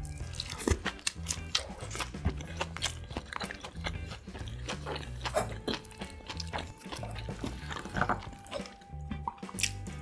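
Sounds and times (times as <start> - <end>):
soft background music: 0.0 - 10.0
wet chewing: 0.0 - 10.0.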